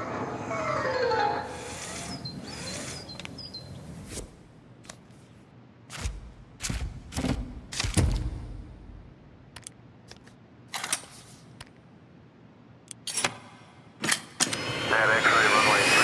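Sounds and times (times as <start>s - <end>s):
sharp clicks and snaps: 9.5s - 10.4s.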